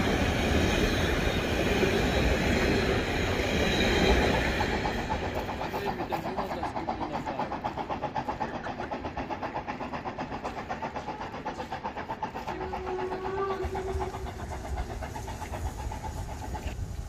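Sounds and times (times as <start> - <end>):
steam locomotive chuffing: 0.0 - 17.0
steam whistle: 12.5 - 14.4.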